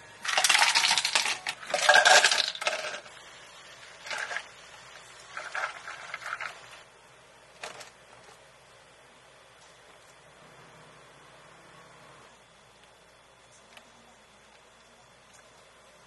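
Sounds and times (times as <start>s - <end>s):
ice cubes clinking in plastic cups: 0.2s - 3.1s, 4.0s - 4.5s, 5.3s - 6.7s
milk pouring over ice: 5.3s - 6.8s.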